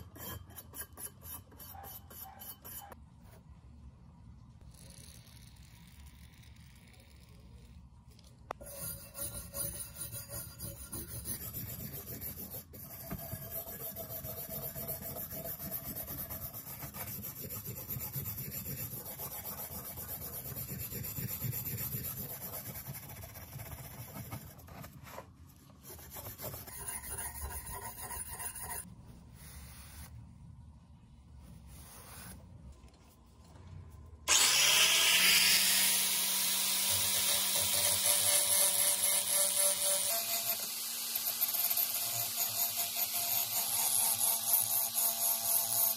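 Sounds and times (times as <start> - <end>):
rough rubbing and scraping on metal: 25.8 - 28.9
electric power tool whine: 34.3 - 42.0.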